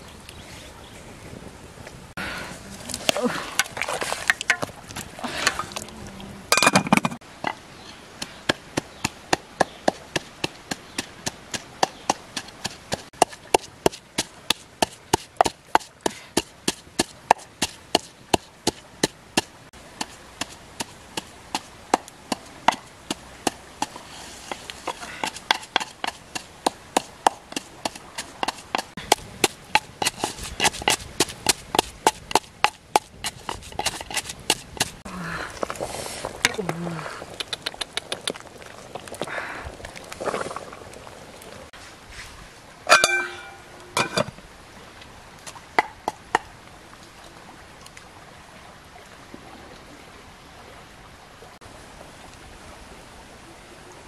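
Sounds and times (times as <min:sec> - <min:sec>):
pestle pounding in a mortar: 0:25.2 - 0:34.9.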